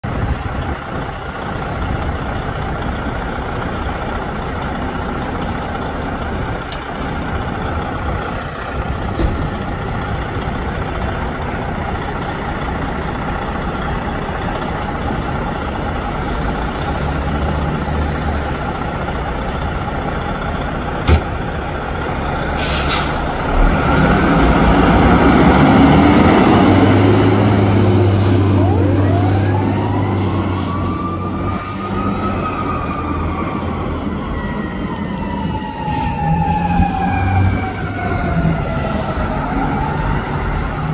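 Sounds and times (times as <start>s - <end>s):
diesel engine idling: 0.0s - 31.4s
air brakes hissing: 22.6s - 23.4s
siren winding up: 28.2s - 38.6s.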